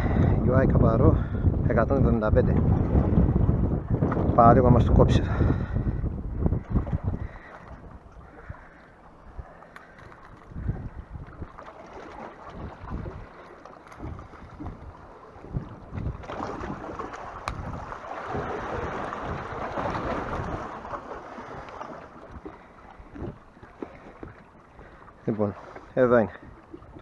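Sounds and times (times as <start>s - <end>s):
wind buffeting microphone: 0.0s - 27.0s
sea water washing against rocks: 9.4s - 27.0s.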